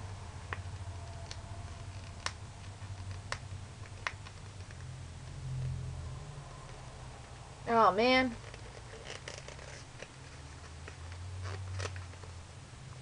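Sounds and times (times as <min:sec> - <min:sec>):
low steady hum: 0:00.0 - 0:13.0
packet packaging crackling: 0:00.5 - 0:04.9, 0:08.3 - 0:12.4.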